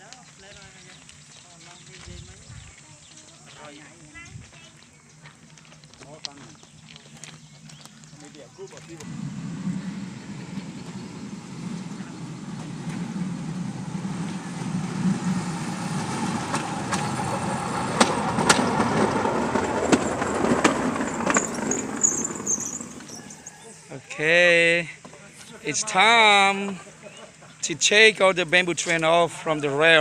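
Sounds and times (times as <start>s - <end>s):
small engine running: 6.1s - 23.6s
sharp clacks of car on track: 16.1s - 22.2s.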